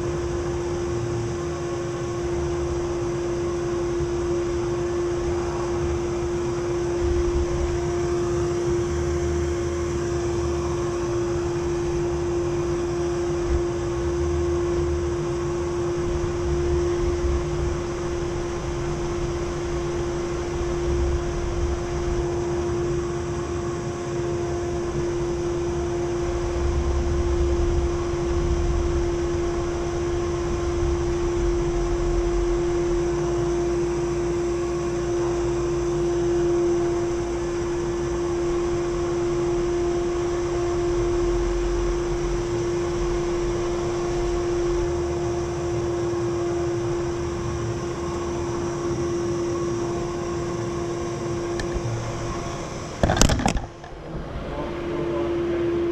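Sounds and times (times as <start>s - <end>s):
low rumble: 3.8s - 23.6s, 24.6s - 35.6s.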